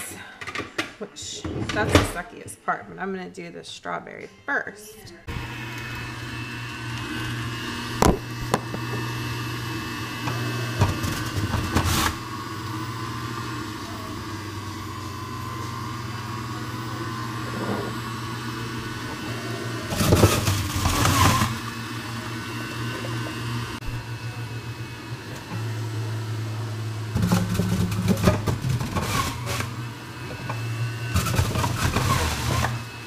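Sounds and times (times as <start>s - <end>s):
juicer grinding fruit: 5.2s - 33.0s
juicer motor hum: 5.3s - 33.0s.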